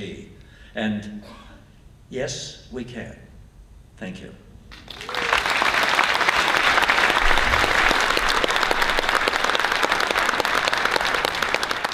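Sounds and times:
audience applauding: 4.7s - 11.9s.

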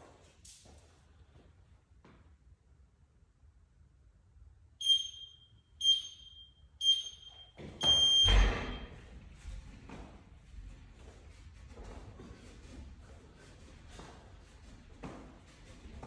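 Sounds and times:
interval timer beeps: 4.8s - 8.7s.

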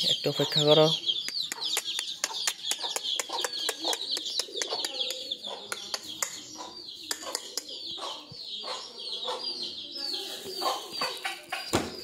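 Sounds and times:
high chirping: 0.0s - 12.0s
pigeons cooing: 0.0s - 12.0s
beaks pecking at feed: 1.0s - 7.8s.

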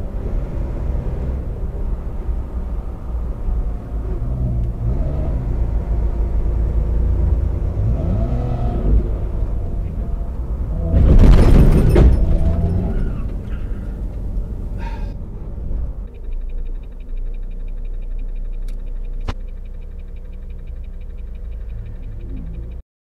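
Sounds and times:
car engine revving: 0.0s - 22.8s
truck cab rumble: 0.0s - 22.8s
faint high ticking: 16.0s - 22.8s.

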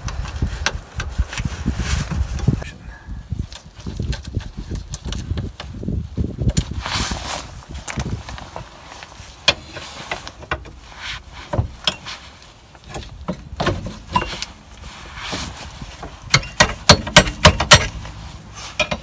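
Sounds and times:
metal clicks and knocks: 16.0s - 18.0s, 18.8s - 19.0s.

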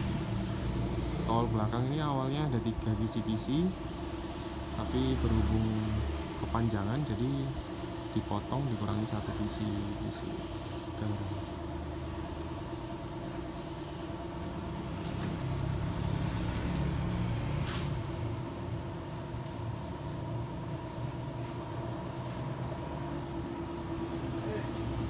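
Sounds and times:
air hiss: 0.0s - 1.0s, 3.4s - 11.7s, 13.4s - 14.2s
large vehicle engine running: 14.1s - 25.0s.

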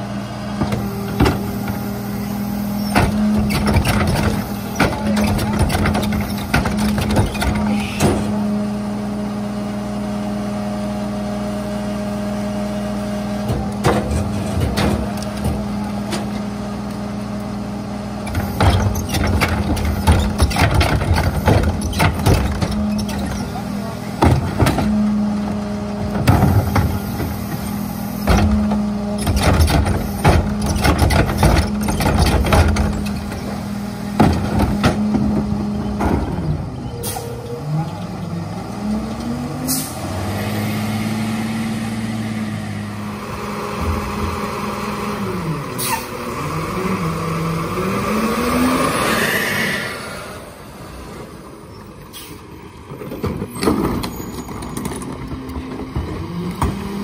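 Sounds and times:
truck engine revving: 0.0s - 57.0s
metal clanks and knocks: 2.9s - 8.4s, 13.4s - 16.4s, 18.2s - 33.6s, 34.2s - 36.8s
air brake hiss: 52.1s - 52.5s.

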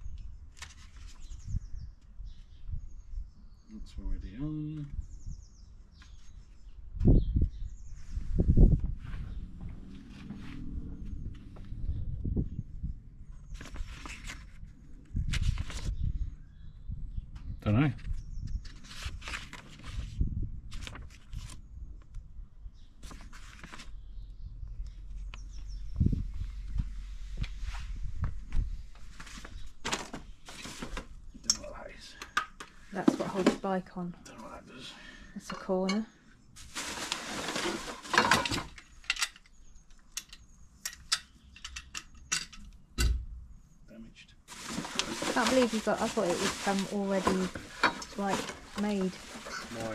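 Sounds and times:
pages turning: 0.5s - 1.3s, 13.6s - 15.9s, 18.0s - 21.6s, 23.0s - 24.0s, 29.1s - 31.1s, 36.6s - 38.6s, 44.5s - 49.9s
paper rustling: 0.5s - 1.3s, 13.5s - 15.9s, 18.0s - 21.6s, 23.0s - 24.0s, 29.0s - 31.1s, 36.6s - 38.8s, 44.5s - 49.9s
metal parts clicking and clinking: 38.2s - 39.5s, 40.1s - 42.7s.

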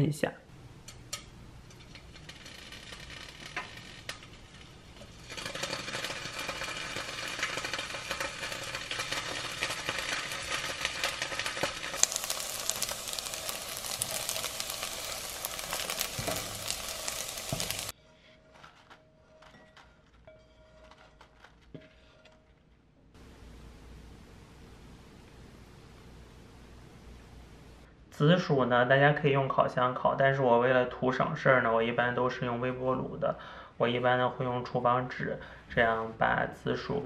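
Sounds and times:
tofu sizzling in hot oil: 5.1s - 17.9s.

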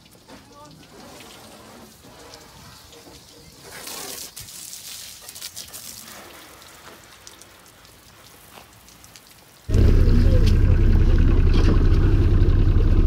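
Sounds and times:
light rain pattering: 0.0s - 9.7s.

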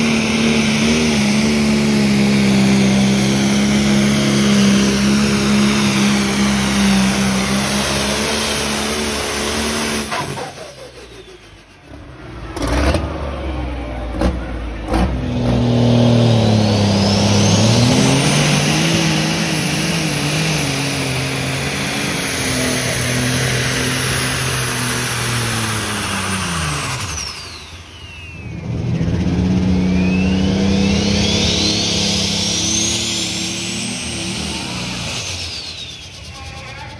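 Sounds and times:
diesel tractor engine running hard: 0.0s - 36.9s
high turbo whistle: 16.4s - 36.9s.

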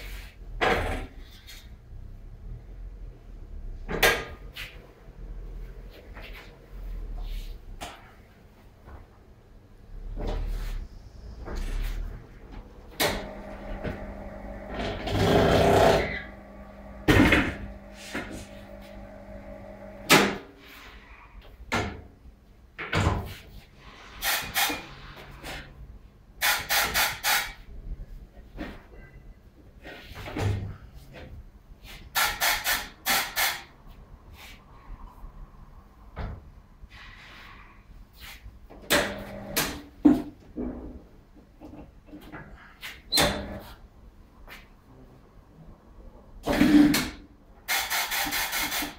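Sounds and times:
turntable motor humming: 13.0s - 20.1s.

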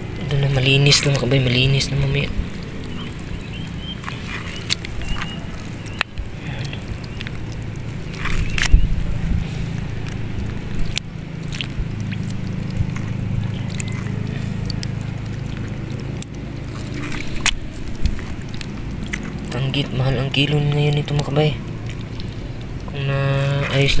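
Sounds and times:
small water splashes: 0.0s - 24.0s
steady low rumble: 0.0s - 24.0s
wet squishes of fish handled: 0.0s - 24.0s.

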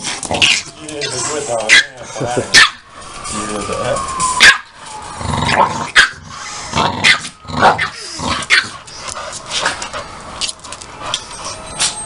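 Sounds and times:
dogs growling: 0.0s - 3.1s, 5.2s - 11.8s
dogs barking: 0.4s - 3.2s, 4.4s - 4.8s, 5.4s - 10.2s.

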